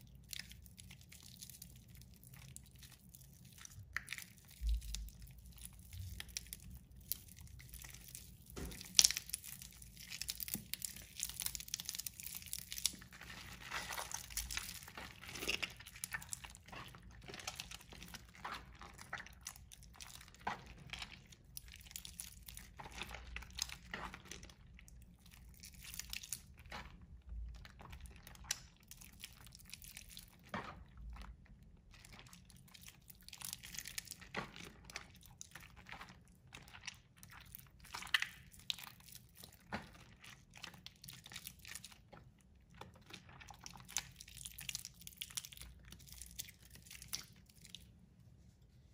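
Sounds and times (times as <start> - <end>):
wet soap crackling and crunching: 0.0 - 48.8.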